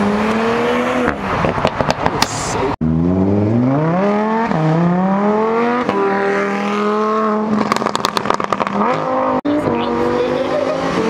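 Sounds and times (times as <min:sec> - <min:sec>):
sports car accelerating hard: 0:02.8 - 0:11.0
exhaust pops and crackles: 0:07.6 - 0:09.0.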